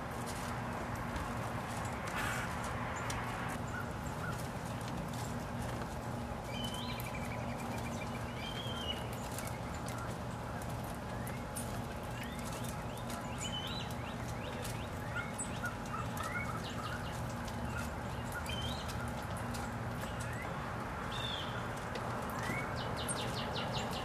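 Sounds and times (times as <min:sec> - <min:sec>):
songbirds chirping: 0:00.0 - 0:24.0
steady low hum: 0:00.0 - 0:24.0.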